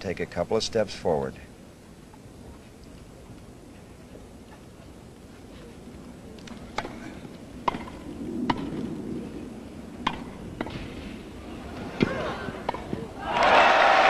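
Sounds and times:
tennis ball hit by racket: 10.0 - 10.8.

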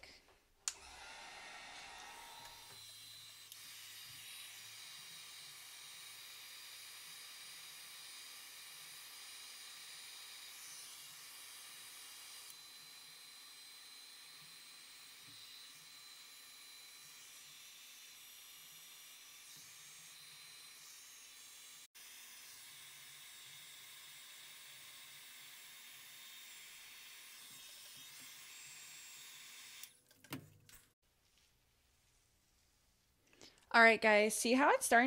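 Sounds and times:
heat gun blowing air: 0.7 - 29.9.

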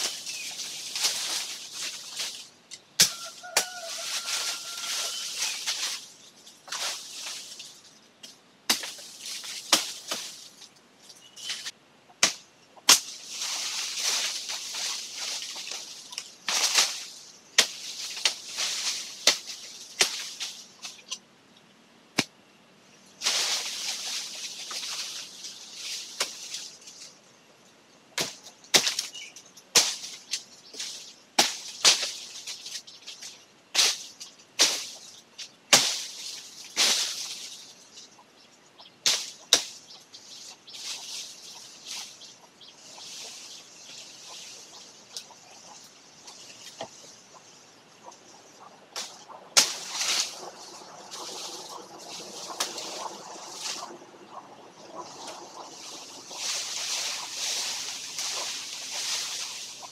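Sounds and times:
tree branches rustling: 0.0 - 59.9
twigs and branches snapping: 48.9 - 54.0.

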